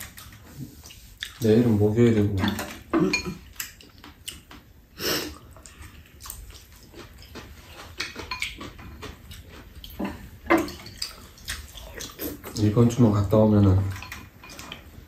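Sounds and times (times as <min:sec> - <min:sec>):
chewing: 0:00.0 - 0:01.8, 0:02.7 - 0:13.0, 0:13.8 - 0:15.0
utensils clinking on ceramic bowls: 0:02.4 - 0:03.7, 0:07.8 - 0:09.1, 0:10.0 - 0:11.2, 0:12.5 - 0:14.9.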